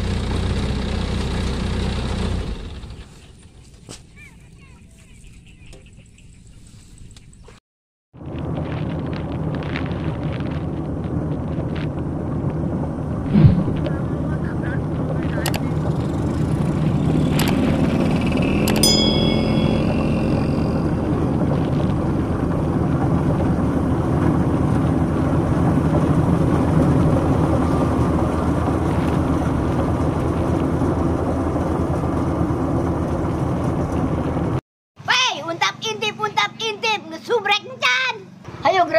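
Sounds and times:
combine harvester running: 0.0 - 3.7, 8.3 - 34.6
ringing metallic tone: 18.4 - 22.4.

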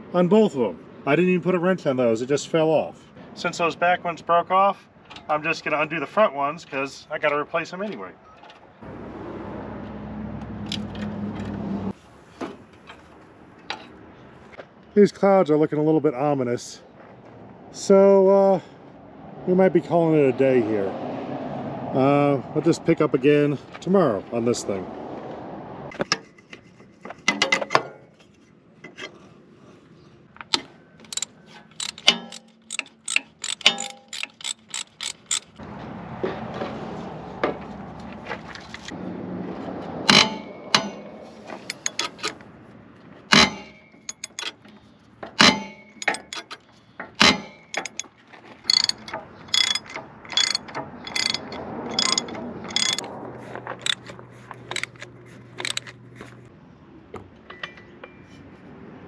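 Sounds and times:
metal tools clanking: 31.0 - 35.6, 40.1 - 42.4, 43.3 - 44.8, 45.4 - 53.1, 53.8 - 56.0, 57.5 - 58.5
socket ratchet wrench clicking: 31.1 - 35.6, 41.7 - 42.3, 44.1 - 44.5, 46.0 - 46.6, 47.7 - 48.1, 48.7 - 53.1, 53.8 - 54.0, 54.7 - 56.0.

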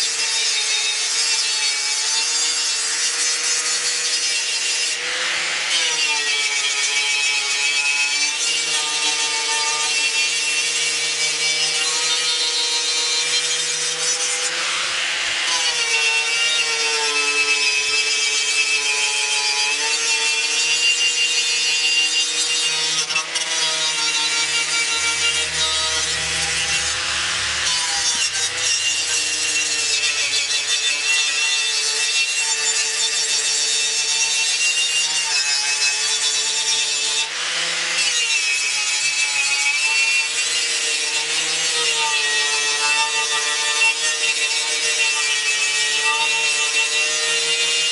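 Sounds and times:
wire wheel grinder scrubbing metal: 21.2 - 33.5.

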